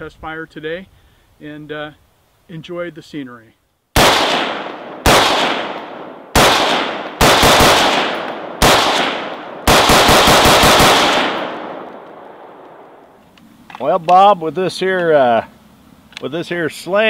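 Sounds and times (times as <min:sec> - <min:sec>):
rifle shots with long echo: 0:04.0 - 0:13.2.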